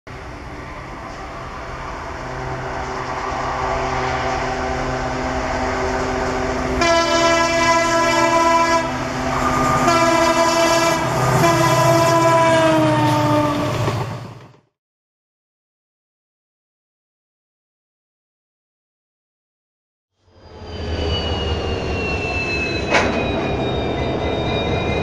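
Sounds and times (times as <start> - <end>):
locomotive engine running: 0.1 - 12.0
locomotive air horn blasts: 6.7 - 13.7.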